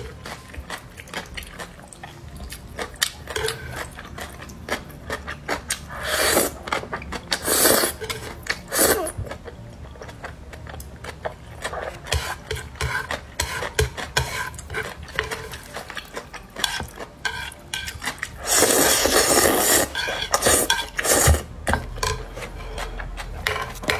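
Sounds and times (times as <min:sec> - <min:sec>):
chopsticks scraping on wooden plate: 0:12.0 - 0:23.9
noodles slurped: 0:18.4 - 0:21.4.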